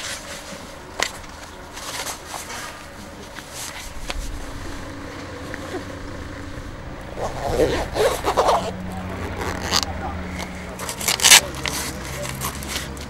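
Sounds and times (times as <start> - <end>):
leather suit rustling: 7.1 - 13.0.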